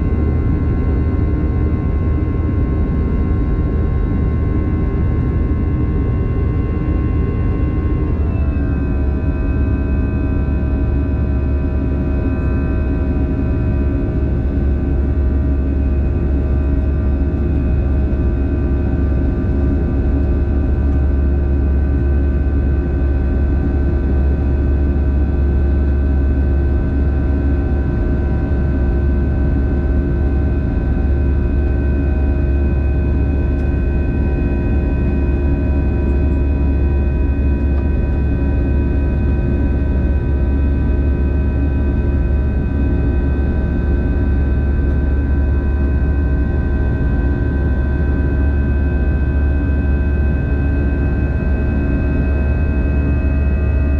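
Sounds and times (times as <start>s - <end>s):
jet engine cabin rumble: 0.0s - 53.9s.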